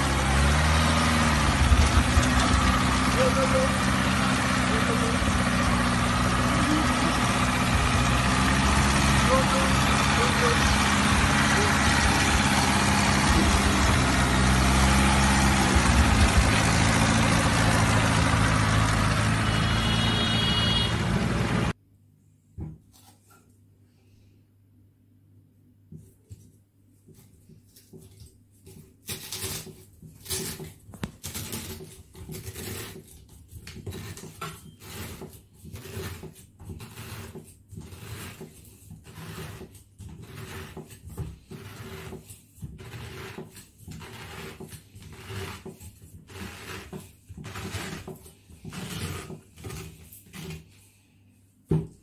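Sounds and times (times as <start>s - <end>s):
corer crunching through pineapple: 42.8s - 50.7s.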